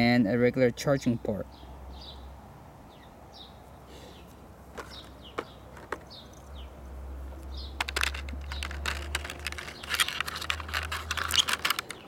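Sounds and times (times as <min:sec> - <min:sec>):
bird chirps: 0:02.9 - 0:06.8
plastic packaging crackling: 0:07.8 - 0:12.0.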